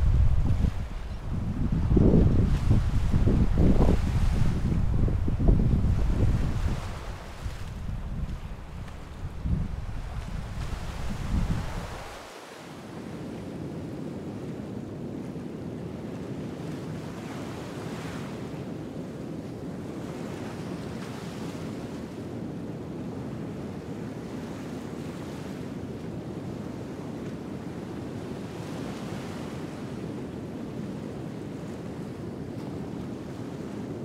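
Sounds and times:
ocean waves rushing: 0.0s - 12.8s.

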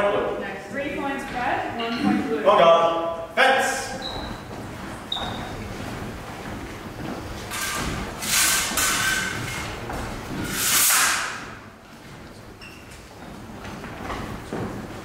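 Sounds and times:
shoes sliding on wooden floor: 3.9s - 15.0s.

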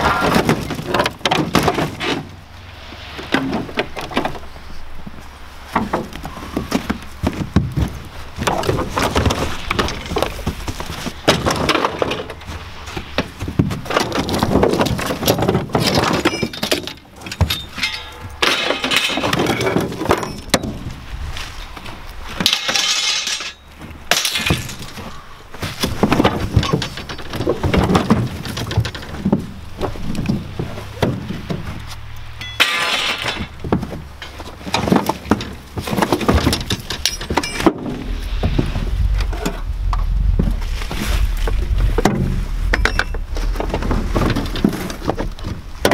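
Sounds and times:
scrap metal clanging and crashing: 8.4s - 21.0s, 22.3s - 29.5s, 32.4s - 39.6s.

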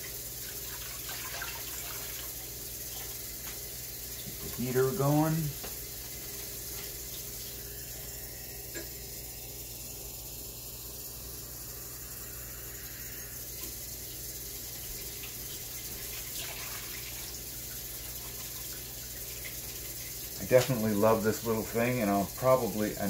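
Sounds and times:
liquid pouring into tank: 0.0s - 3.3s, 14.5s - 22.5s
ultrasonic cleaner hum and hiss: 0.0s - 23.0s.

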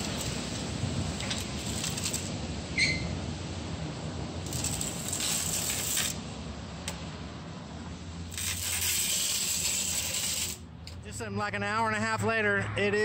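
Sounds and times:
metal pipe scraping on concrete: 8.3s - 10.6s.

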